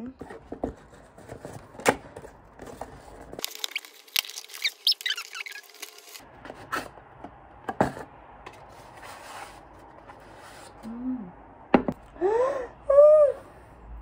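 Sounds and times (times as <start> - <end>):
cardboard squeaking and scraping: 0.0 - 7.2.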